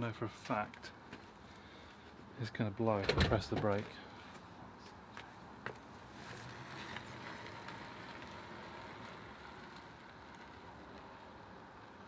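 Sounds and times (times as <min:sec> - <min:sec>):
electric scooter rolling over paving: 0:05.3 - 0:12.0.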